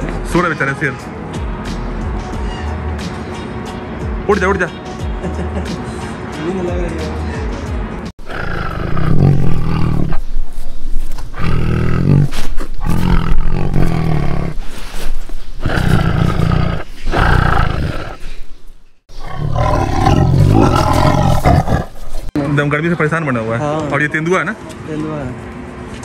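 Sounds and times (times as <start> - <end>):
lion roaring: 8.2 - 10.2, 11.3 - 14.6, 15.6 - 18.4, 19.1 - 22.3.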